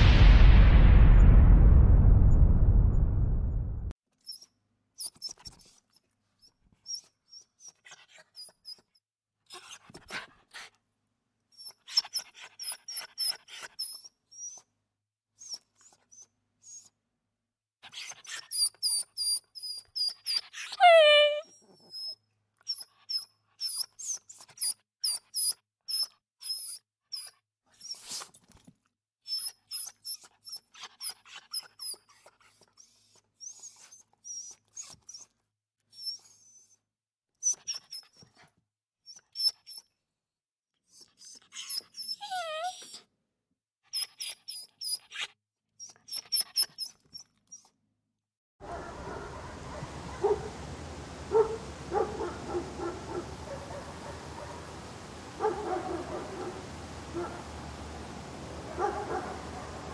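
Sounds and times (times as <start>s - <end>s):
dog yelping and whimpering: 17.9s - 28.1s, 41.0s - 43.1s, 44.0s - 47.7s
dog whining: 18.0s - 22.9s, 41.0s - 43.1s
background hiss: 48.9s - 59.9s.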